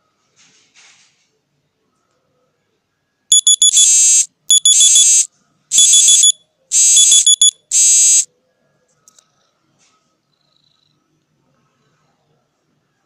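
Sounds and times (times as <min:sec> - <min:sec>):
electronic alarm beeping: 0:03.3 - 0:08.2.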